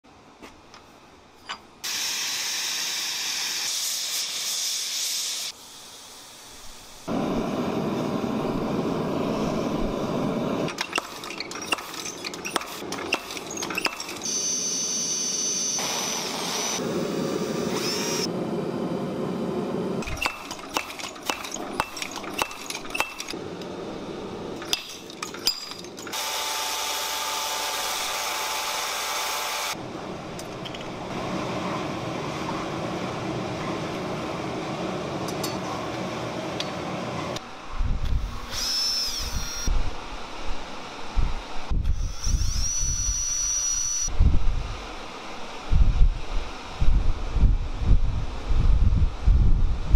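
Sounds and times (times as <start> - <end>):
high steady whine: 5.6 - 10.8, 13.8 - 20.8
metallic strikes and clinks: 24.6 - 26.2.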